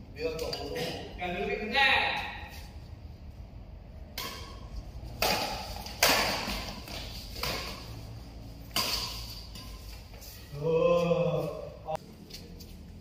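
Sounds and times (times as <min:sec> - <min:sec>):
racket hitting shuttlecock: 0:04.1 - 0:10.2.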